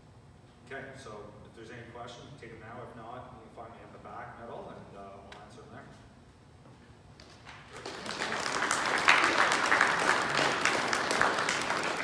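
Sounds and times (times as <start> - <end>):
audience applauding: 7.6 - 12.0.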